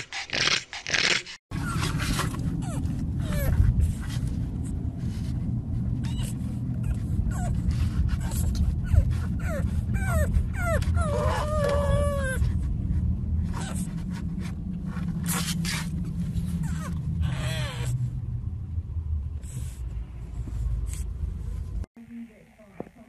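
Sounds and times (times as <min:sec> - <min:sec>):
steady low rumble: 0:01.5 - 0:21.9
puppy whimpering: 0:08.2 - 0:12.5, 0:16.6 - 0:18.0.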